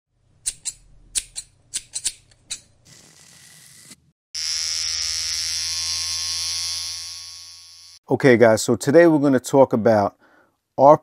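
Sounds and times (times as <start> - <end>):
electric hair clipper buzzing: 2.9 - 8.0.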